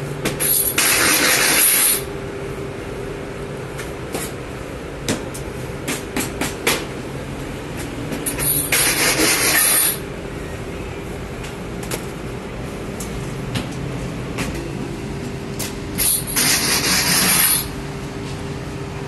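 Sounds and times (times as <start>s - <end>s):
machine hum: 6.8s - 19.0s.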